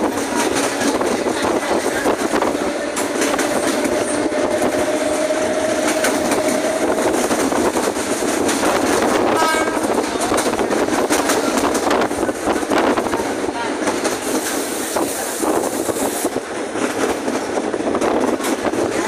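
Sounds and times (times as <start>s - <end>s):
track clicks and rattles: 0.0s - 19.0s
train wheels rushing on rail: 0.0s - 19.0s.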